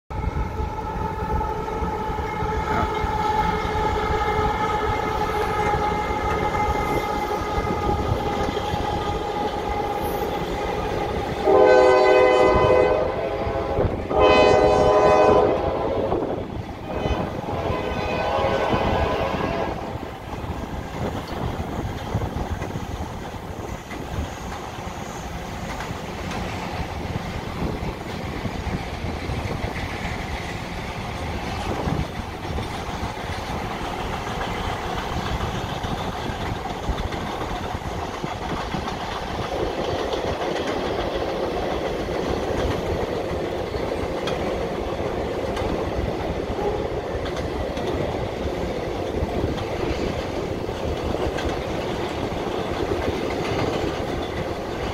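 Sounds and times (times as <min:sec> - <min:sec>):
locomotive horn blasts: 0:00.1 - 0:08.2, 0:11.4 - 0:20.1, 0:46.6 - 0:46.9
clickety-clack of wheels on rail: 0:00.1 - 0:54.9
train rumbling over steel bridge: 0:00.1 - 0:54.9.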